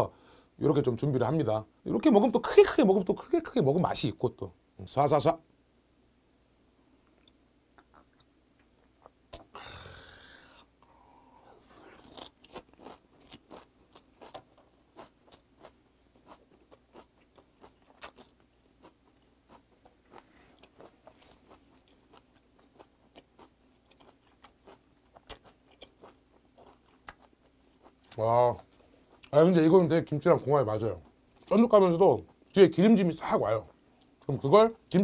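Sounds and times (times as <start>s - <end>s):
wet chewing: 11.6s - 29.4s.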